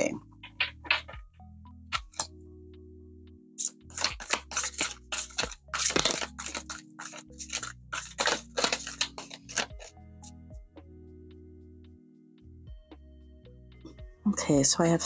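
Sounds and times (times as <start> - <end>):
cards being shuffled: 0.4 - 1.2, 3.6 - 9.9.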